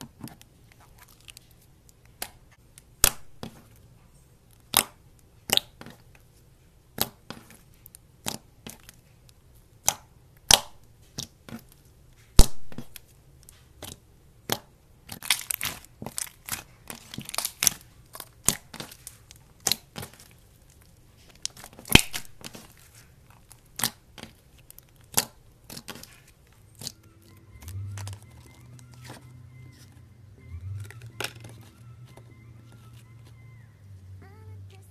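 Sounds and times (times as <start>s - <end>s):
slime crackling: 0.0s - 33.7s
slime popping and clicking: 4.6s - 6.0s, 9.8s - 11.7s, 13.8s - 22.7s, 23.5s - 27.0s.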